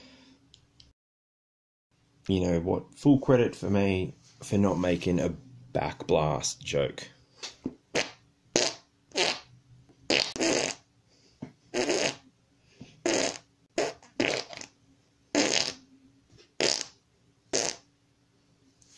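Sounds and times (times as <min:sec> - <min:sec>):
armpit fart noises: 0:07.9 - 0:09.5, 0:10.1 - 0:10.9, 0:11.7 - 0:12.3, 0:13.0 - 0:15.8, 0:16.6 - 0:17.8.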